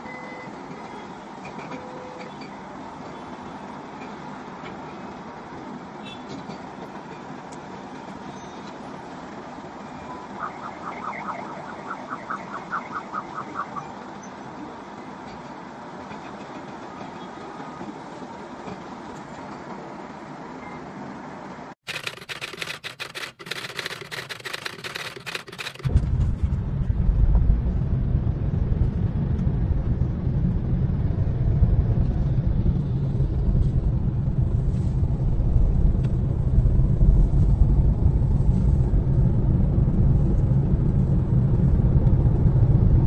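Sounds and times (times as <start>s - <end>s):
crackling clicks: 21.8s - 25.9s
car cabin road rumble: 21.9s - 43.0s.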